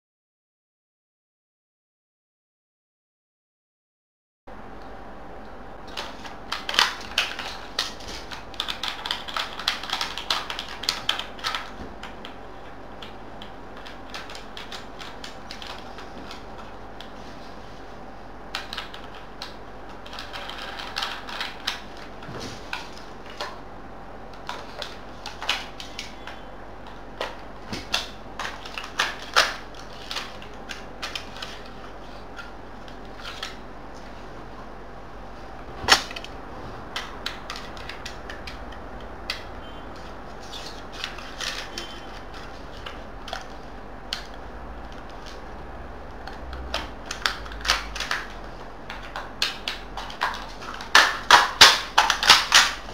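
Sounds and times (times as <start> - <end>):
plastic parts clicking and snapping: 24.3 - 33.6, 46.2 - 52.8.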